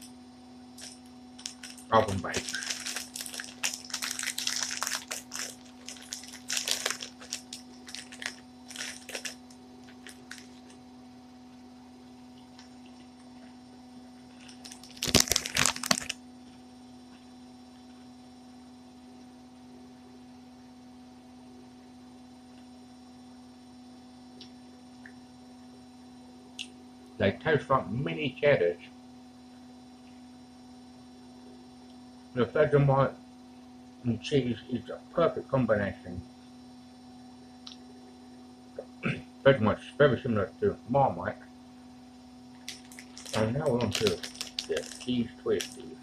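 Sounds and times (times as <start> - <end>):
low electrical hum: 0.0 - 46.0
snack packet crackling: 0.8 - 10.8, 14.4 - 16.2, 42.6 - 45.9.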